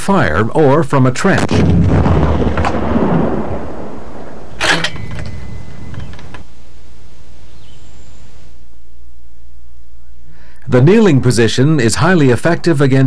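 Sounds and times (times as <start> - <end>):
rocket blast booms: 1.4 - 6.8.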